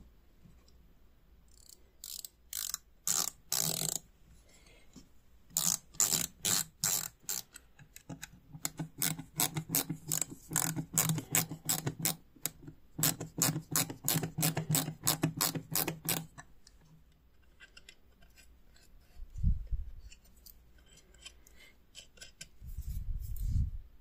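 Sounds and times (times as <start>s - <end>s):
quiet handling sounds: 16.4s - 23.9s.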